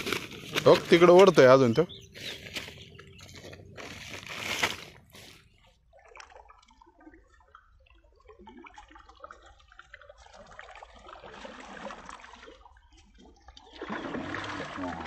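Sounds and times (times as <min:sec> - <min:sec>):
water dripping and splashing: 0:05.9 - 0:15.0.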